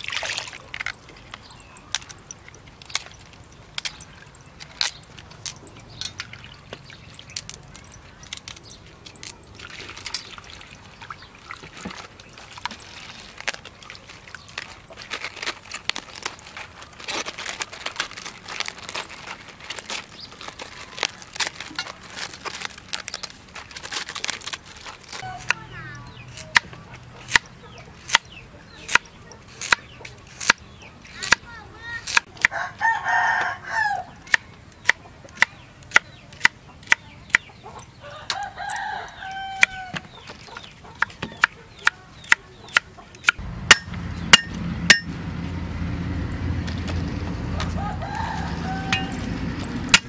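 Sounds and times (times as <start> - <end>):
water splashing in basin: 0.0 - 4.6, 5.3 - 15.1
wet leaves rustling: 0.0 - 27.3, 41.6 - 50.0.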